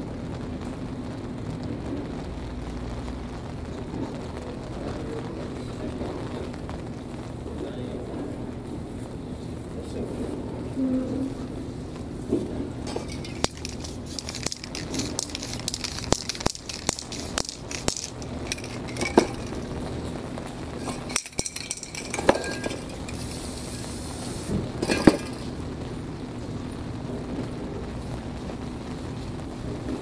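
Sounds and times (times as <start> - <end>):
spray can rattling when shaken: 12.8 - 19.7, 20.8 - 23.4
aerosol spray hiss: 13.5 - 18.2, 23.2 - 24.6.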